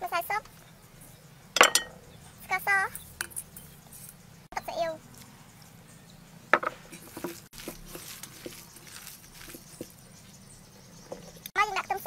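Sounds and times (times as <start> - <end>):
hands kneading ground meat: 6.9 - 10.6.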